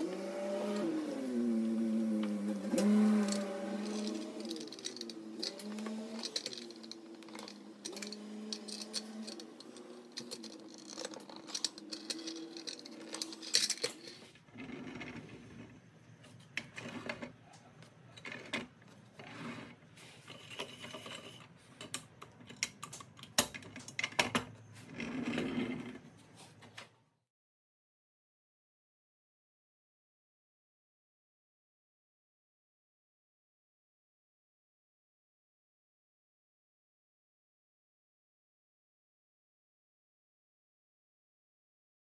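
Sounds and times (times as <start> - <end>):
toy truck wheels rumbling: 0.0 - 26.2
toy axles clicking into place: 2.7 - 14.3.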